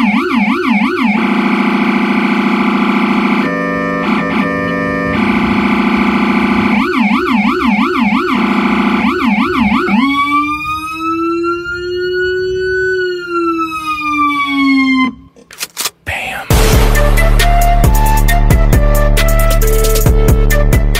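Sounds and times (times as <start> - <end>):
electronic siren: 0.0 - 15.4.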